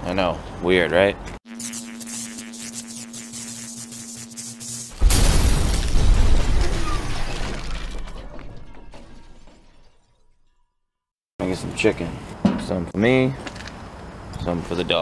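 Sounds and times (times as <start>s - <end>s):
steady electrical buzz: 1.5s - 5.6s
glass shattering: 4.9s - 10.8s.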